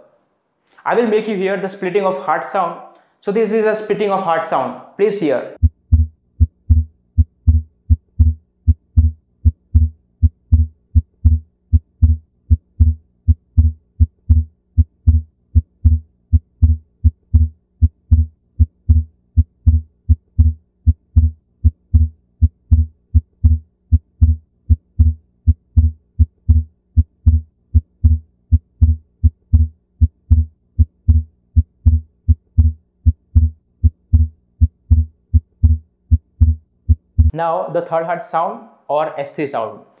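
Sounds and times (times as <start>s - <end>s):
heart beating: 5.6s - 37.3s.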